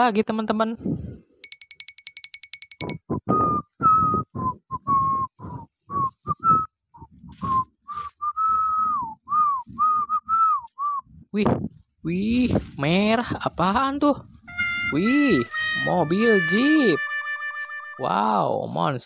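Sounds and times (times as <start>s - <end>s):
high electronic pips: 1.4s - 3.1s, 14.5s - 18.2s
person whistling a tune: 2.7s - 11.1s.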